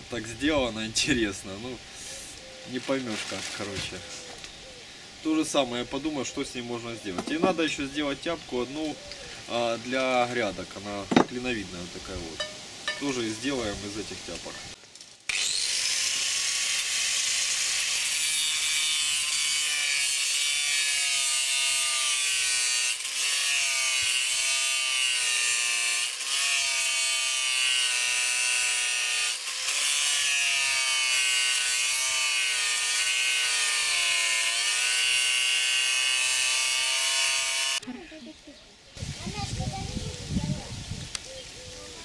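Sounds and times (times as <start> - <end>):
angle grinder cutting metal: 15.3 - 37.8.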